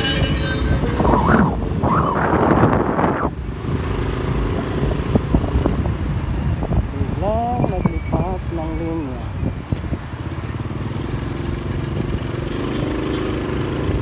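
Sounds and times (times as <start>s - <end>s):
rush of noise: 0.0s - 8.2s
wind noise on microphone: 0.0s - 14.0s.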